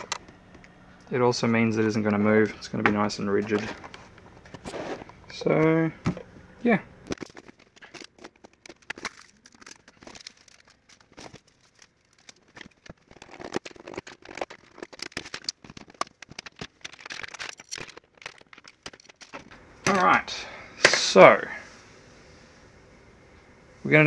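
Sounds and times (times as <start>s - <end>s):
hard plastic parts clicking and knocking: 7.1s - 20.0s.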